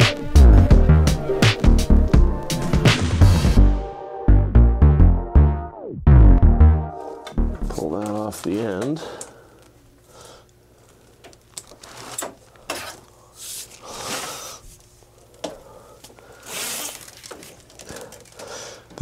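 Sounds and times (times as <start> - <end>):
wires scraping in conduit: 10.9 - 15.0.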